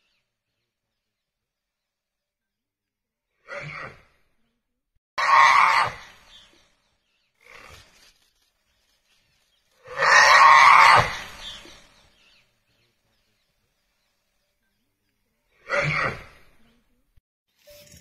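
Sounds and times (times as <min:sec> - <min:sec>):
tiger and wild boar calls: 0:09.8 - 0:11.8, 0:15.5 - 0:16.6.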